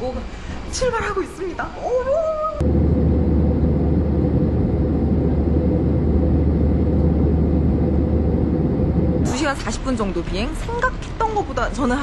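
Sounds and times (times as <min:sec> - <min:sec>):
airliner cabin rumble: 0:02.6 - 0:12.0.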